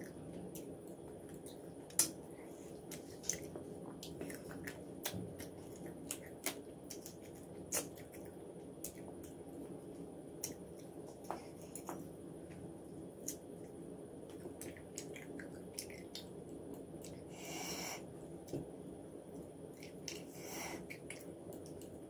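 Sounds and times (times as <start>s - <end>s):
person chewing and lip-smacking: 2.8s - 9.4s, 14.3s - 17.3s.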